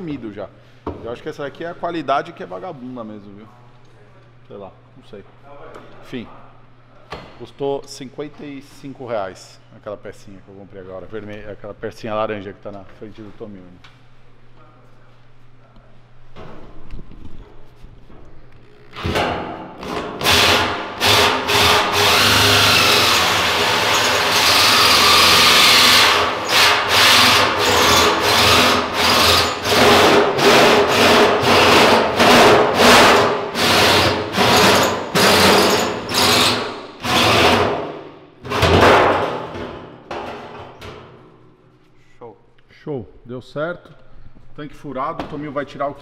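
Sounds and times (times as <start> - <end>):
drill with hole saw cutting steel: 19.8 - 37.8.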